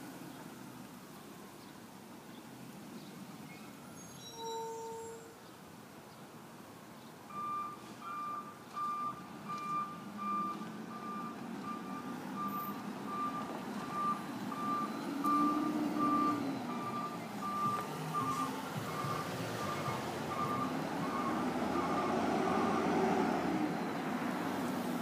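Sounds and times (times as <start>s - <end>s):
reversing alarm beeping: 7.3s - 23.0s
truck engine running: 13.0s - 22.8s.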